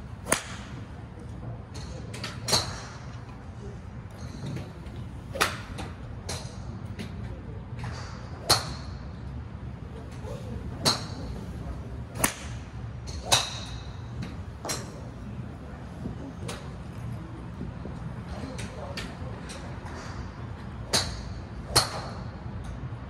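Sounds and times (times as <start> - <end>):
steady low hum: 0.0 - 23.0
golf clubs striking balls: 0.1 - 3.4, 4.1 - 17.1, 18.4 - 22.8.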